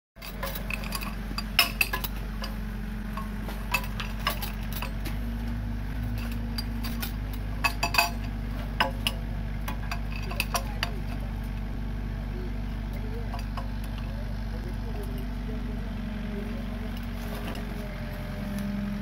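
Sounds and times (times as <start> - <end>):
steel chains clinking: 0.2 - 5.2, 6.0 - 11.6, 13.1 - 14.1
excavator diesel engine running: 0.2 - 19.0.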